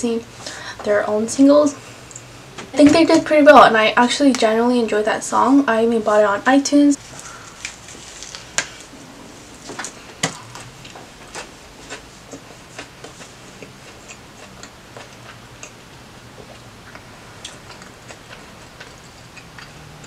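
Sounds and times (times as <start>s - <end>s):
chewing with moist crunches: 9.5s - 20.0s.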